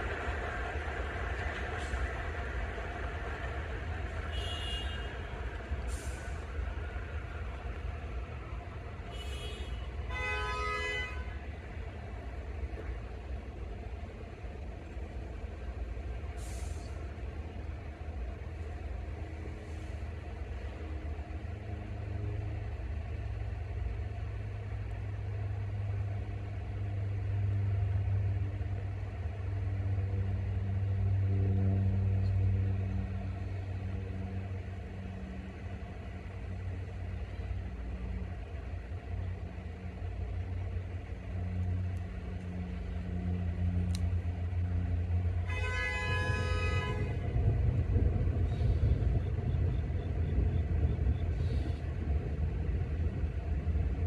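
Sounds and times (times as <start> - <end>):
train rumbling on tracks: 0.0 - 54.0
subway train horn blast: 4.1 - 6.4, 9.0 - 11.7, 30.0 - 35.5, 44.6 - 50.4.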